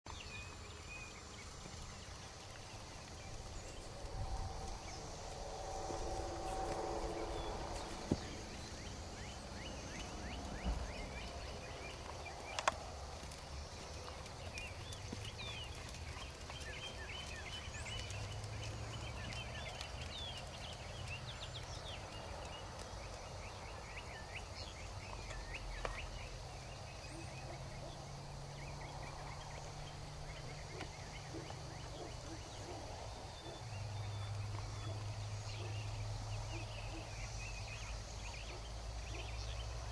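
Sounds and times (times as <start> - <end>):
low steady rumble: 0.1 - 23.3
birds chirping: 0.1 - 39.9.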